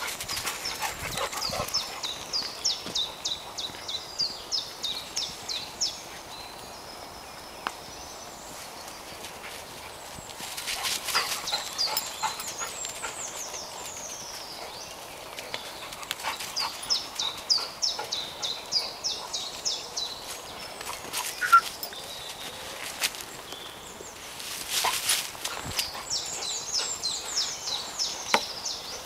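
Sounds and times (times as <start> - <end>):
songbird singing: 0.0 - 29.0
movement through leaf litter: 19.4 - 28.2.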